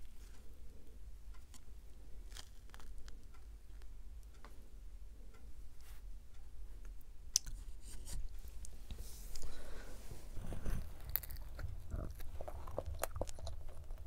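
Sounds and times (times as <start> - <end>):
faint low hum: 0.0 - 14.0
pastry crust crackling: 1.3 - 4.4, 9.4 - 14.0.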